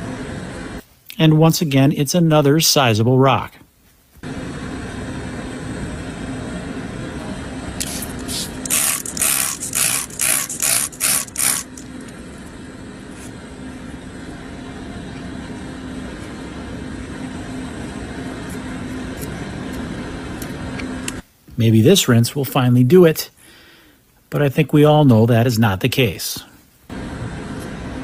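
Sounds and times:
low machine hum: 0:00.0 - 0:03.5, 0:04.2 - 0:22.8, 0:26.9 - 0:28.0
spray bottle squirting water: 0:07.8 - 0:11.9.

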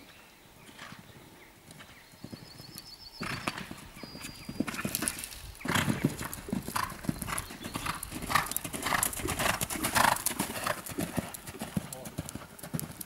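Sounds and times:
horse hooves cantering on sand: 0:00.7 - 0:13.0.

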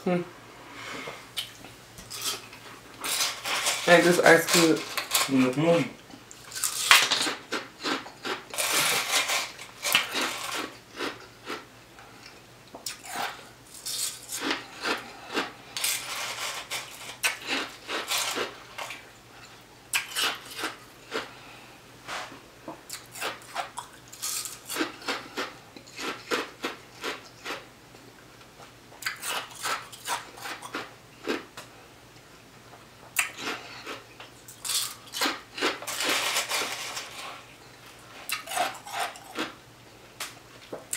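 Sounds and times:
ice crunching in mouth: 0:06.3 - 0:11.6.

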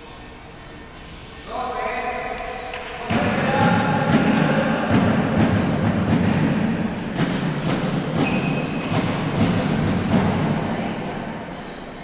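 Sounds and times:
rackets hitting shuttlecock: 0:02.7 - 0:10.7.

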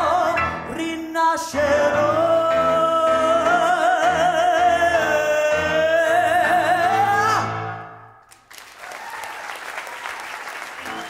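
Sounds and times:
low piano chords: 0:00.0 - 0:08.0.

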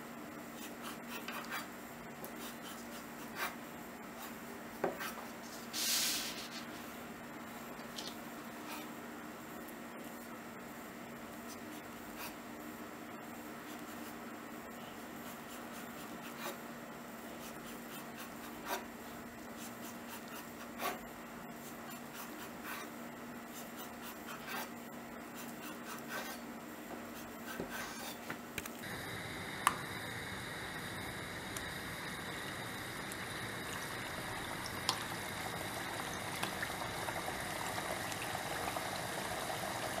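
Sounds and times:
knife scraping through dough: 0:15.2 - 0:16.6, 0:17.3 - 0:18.9, 0:19.6 - 0:26.5, 0:27.1 - 0:28.3
dough sizzling in frying oil: 0:28.9 - 0:40.0.

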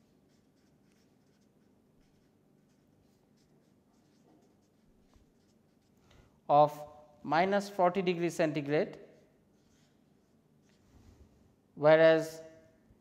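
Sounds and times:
marker writing on paper: 0:00.0 - 0:06.0, 0:09.0 - 0:10.8.

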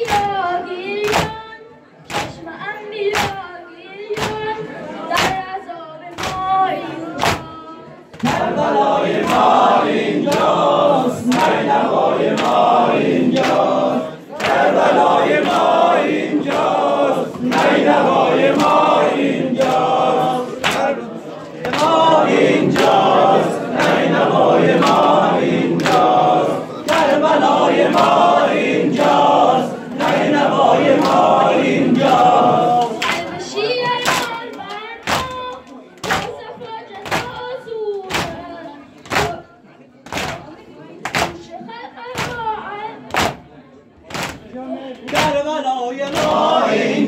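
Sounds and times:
men chanting in unison: 0:08.2 - 0:33.5, 0:45.0 - 0:47.0
chest-beating slaps: 0:10.3 - 0:11.7, 0:16.4 - 0:21.0, 0:23.8 - 0:26.2.

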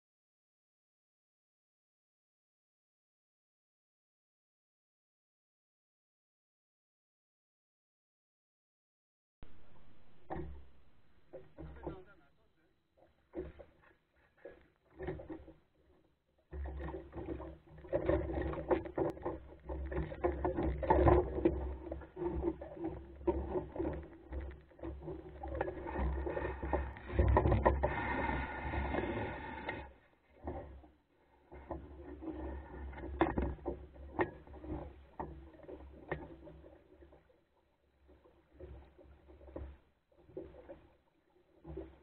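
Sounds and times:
knocks from boat: 0:09.4 - 0:12.2
water splashing along boat hull: 0:09.4 - 0:42.0.

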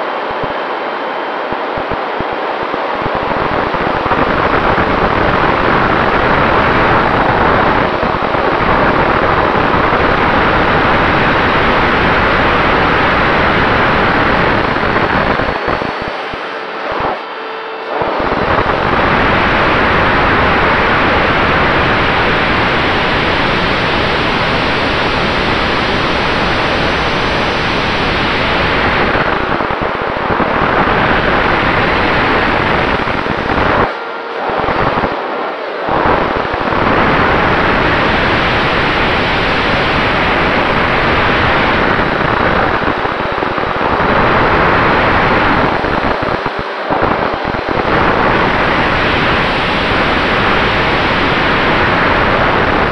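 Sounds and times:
wind rushing over microphone: 0:00.0 - 0:52.9.

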